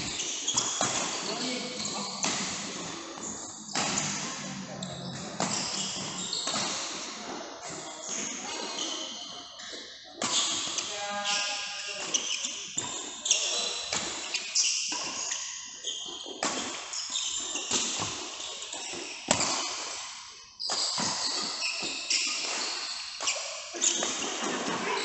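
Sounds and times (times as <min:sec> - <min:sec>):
racket hitting shuttlecock: 0:00.0 - 0:01.3, 0:02.2 - 0:03.0, 0:03.7 - 0:04.5, 0:05.3 - 0:07.1
shoes squeaking on court: 0:00.0 - 0:07.0, 0:07.6 - 0:19.8, 0:20.6 - 0:25.0.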